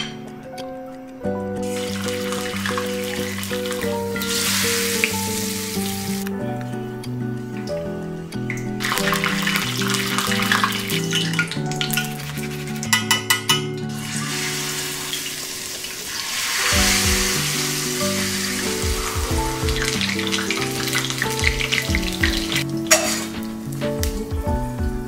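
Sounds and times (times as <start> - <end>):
background music: 0.0 - 25.0
hot oil sizzling: 1.6 - 6.3, 8.8 - 24.3.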